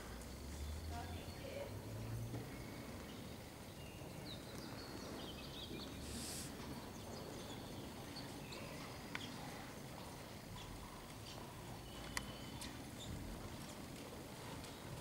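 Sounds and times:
low background noise: 0:00.0 - 0:15.0
short hiss: 0:06.0 - 0:06.5.

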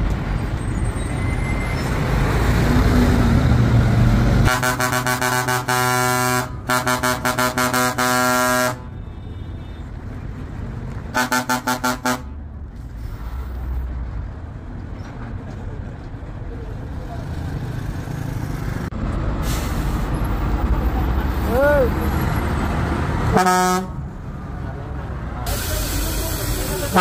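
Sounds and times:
coach horn tooting: 0:04.4 - 0:09.8, 0:11.1 - 0:12.3, 0:23.3 - 0:24.0.

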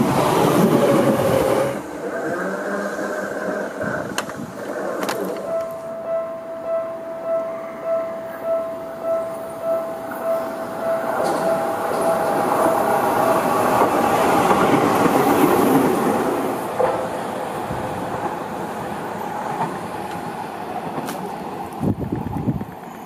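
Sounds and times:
wheels clattering over rail joints: 0:00.0 - 0:05.9, 0:11.0 - 0:23.0
electric train passing: 0:00.0 - 0:23.0.

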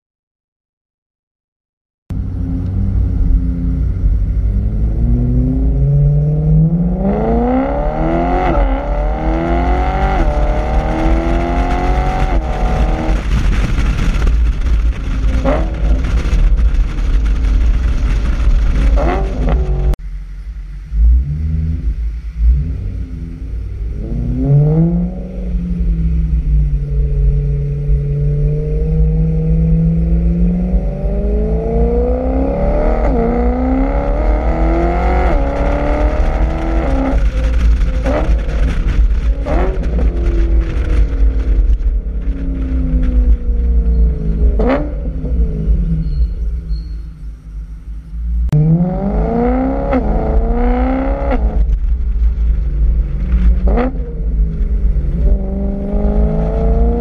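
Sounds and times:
loud rushing noise: 0:02.2 - 0:28.3, 0:30.9 - 0:45.6
car engine revving hard: 0:02.4 - 0:14.1, 0:18.3 - 0:20.0, 0:28.1 - 0:41.2, 0:48.6 - 0:51.7, 0:55.2 - 0:57.0
exhaust cracks: 0:06.8 - 0:24.4, 0:25.0 - 0:46.6, 0:48.4 - 0:57.0.

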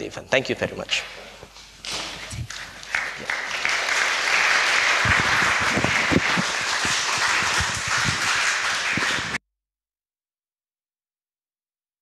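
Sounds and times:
audience applauding: 0:02.4 - 0:09.4.

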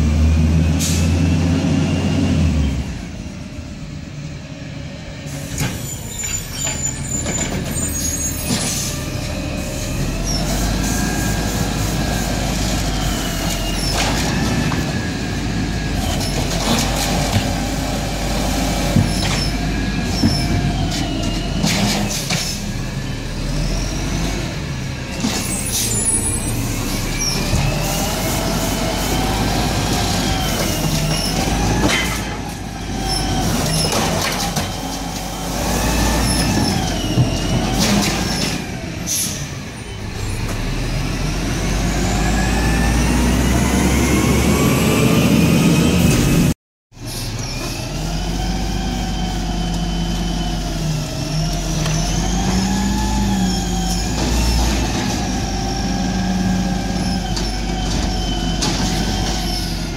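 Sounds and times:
air brake hisses: 0:39.1 - 0:39.5.

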